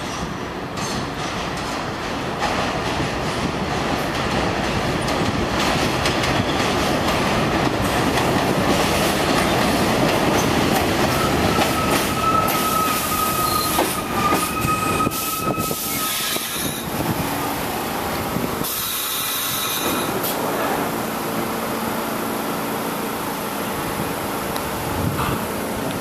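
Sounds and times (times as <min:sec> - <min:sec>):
train wheels rumbling on rails: 0:00.0 - 0:26.0
high brake squeal: 0:11.1 - 0:16.9, 0:18.6 - 0:20.2.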